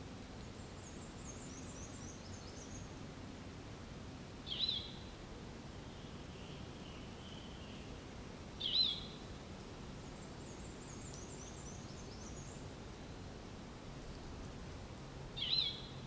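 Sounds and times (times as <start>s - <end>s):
steady outdoor hiss: 0.0s - 16.0s
faint high bird twittering: 4.5s - 5.0s, 15.4s - 16.0s.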